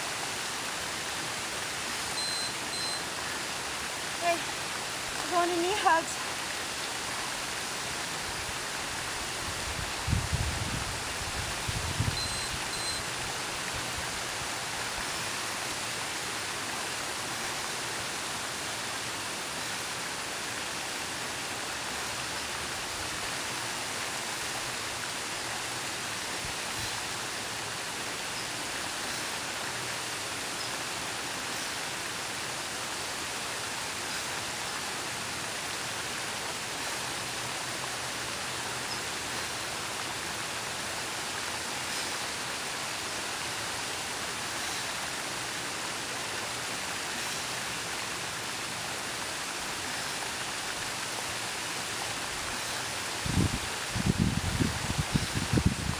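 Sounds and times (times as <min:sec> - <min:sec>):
waterfall spilling over rocks: 0:00.0 - 0:55.9.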